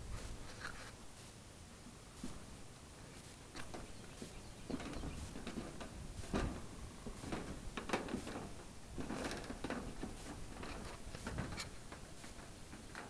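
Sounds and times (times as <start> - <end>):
wire mesh knocking and rattling on metal roof: 4.6 - 13.0.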